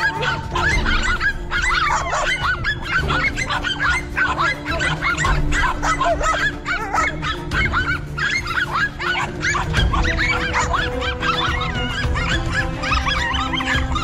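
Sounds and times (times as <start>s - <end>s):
dogs barking high-pitched yaps: 0.0s - 14.0s.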